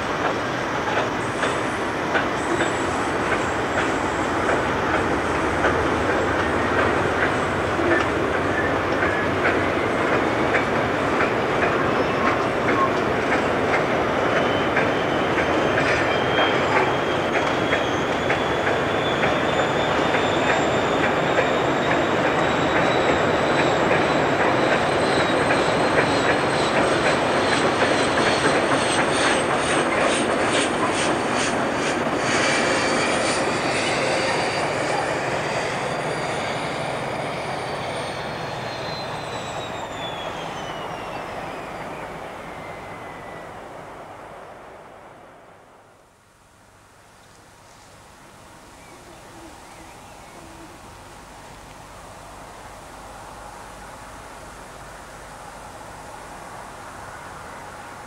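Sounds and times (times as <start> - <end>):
locomotive high whine: 0.0 - 58.0
train rumble: 0.0 - 58.0
wheels clicking over rail joints: 0.2 - 19.4.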